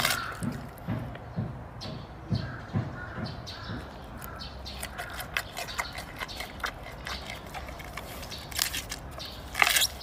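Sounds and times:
panda chewing bamboo: 0:04.7 - 0:10.0.

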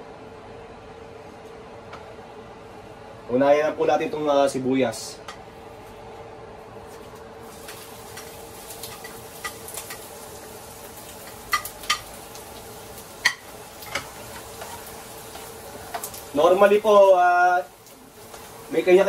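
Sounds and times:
onion sizzling in oil: 0:07.4 - 0:19.0
spatula clicking on plate and pan: 0:07.7 - 0:10.1, 0:11.2 - 0:12.2, 0:13.2 - 0:16.2.

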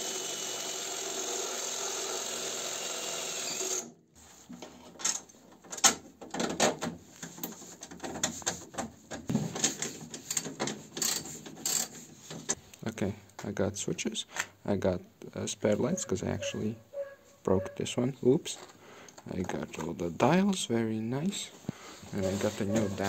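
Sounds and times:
cordless drill boring sheet metal: 0:00.0 - 0:03.9.

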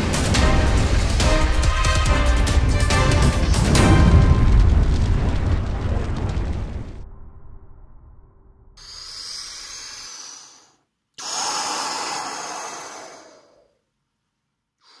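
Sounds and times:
breathy exhalations: 0:08.8 - 0:13.9, 0:14.8 - 0:15.0.

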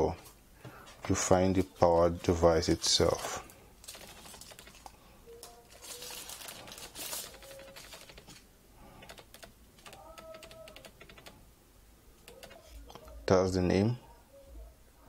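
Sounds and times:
plastic sleeve crinkling: 0:03.0 - 0:08.4.

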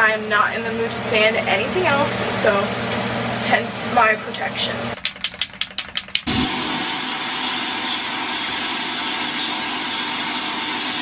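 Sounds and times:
spray can rattling clicks: 0:05.0 - 0:06.3.

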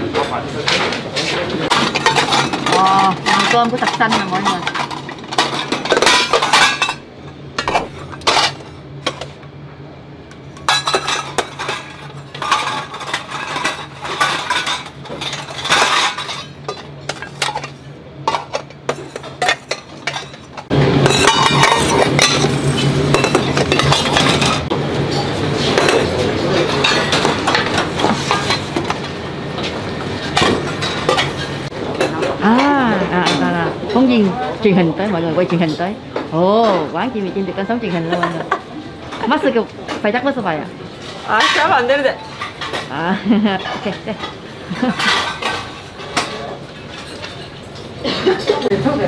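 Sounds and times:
kitchen clatter of dishes: 0:00.0 - 0:07.0, 0:07.6 - 0:09.4, 0:10.3 - 0:34.4, 0:37.8 - 0:40.3, 0:41.0 - 0:49.0
metal bowls clinking: 0:01.6 - 0:09.4, 0:10.3 - 0:29.0, 0:30.1 - 0:33.6, 0:41.1 - 0:48.8.

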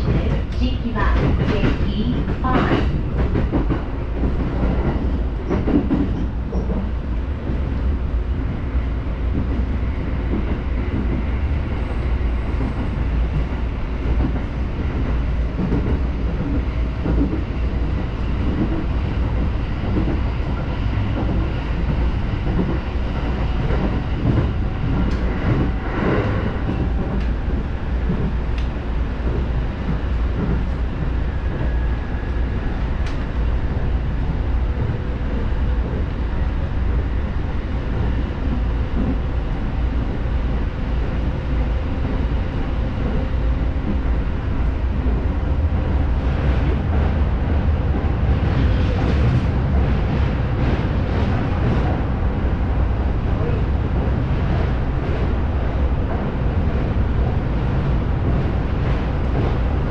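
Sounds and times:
rail clicks: 0:00.0 - 0:07.8, 0:09.2 - 0:59.9
train wheels rumbling on rail: 0:00.0 - 0:59.9.

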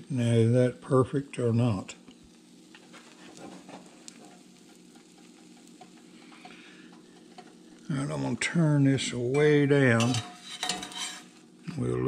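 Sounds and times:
pancake sizzling in a skillet: 0:00.0 - 0:12.0
tiny pops and crackles: 0:02.0 - 0:07.9.

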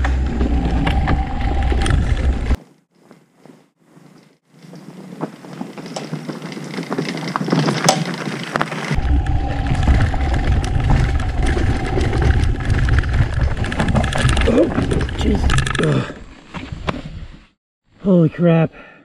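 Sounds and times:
wind rumble on microphone: 0:00.0 - 0:02.6, 0:08.9 - 0:15.8
stones rattling under tyres: 0:04.5 - 0:16.2.

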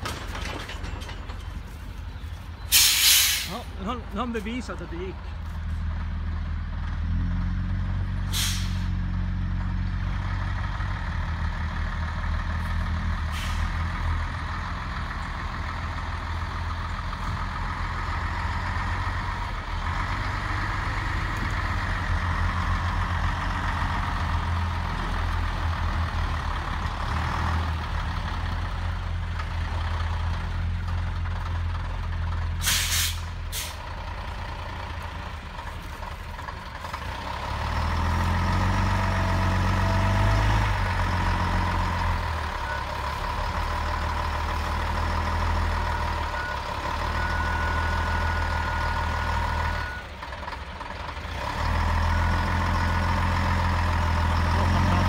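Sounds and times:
truck engine under load: 0:00.0 - 0:55.0
air brake hisses: 0:02.7 - 0:03.6, 0:08.3 - 0:09.0, 0:13.3 - 0:13.7, 0:32.6 - 0:33.8.

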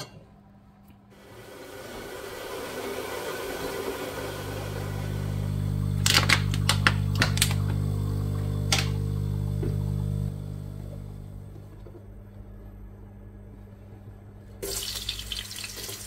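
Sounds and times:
small electric motor humming: 0:02.6 - 0:11.7.

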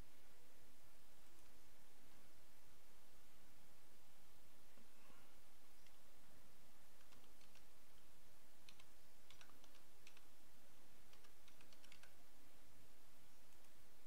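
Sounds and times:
steady background hiss: 0:00.0 - 0:14.0
keyboard keystroke clicks: 0:07.0 - 0:08.0, 0:08.6 - 0:10.3, 0:11.1 - 0:12.2.

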